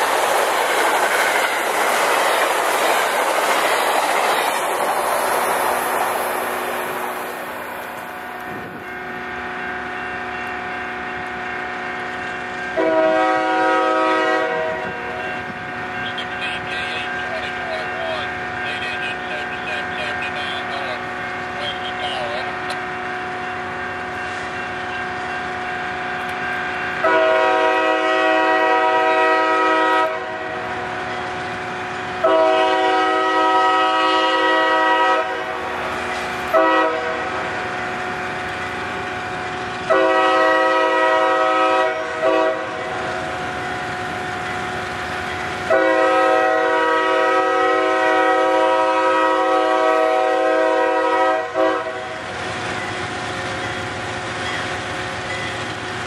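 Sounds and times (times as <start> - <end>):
train rumble: 0.0 - 56.0
locomotive air horn blasts: 12.7 - 18.0, 18.6 - 20.8, 27.0 - 30.7, 32.2 - 35.8, 36.5 - 37.4, 39.9 - 42.9, 45.7 - 52.2.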